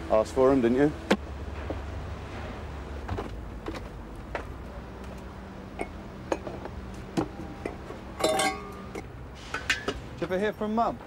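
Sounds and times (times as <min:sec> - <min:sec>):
light clicks and clinks: 0:07.6 - 0:10.0.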